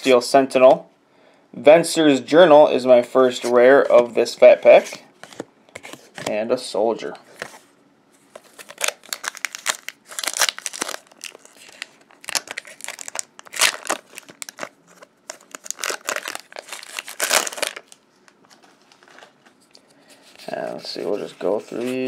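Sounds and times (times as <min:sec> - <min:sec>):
foil wrapper tearing and crinkling: 0:08.5 - 0:18.0.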